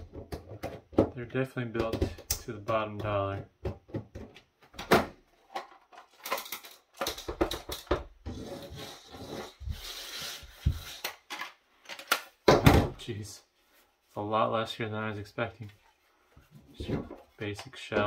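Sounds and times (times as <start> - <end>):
plastic scraping and rubbing: 5.3 - 12.1.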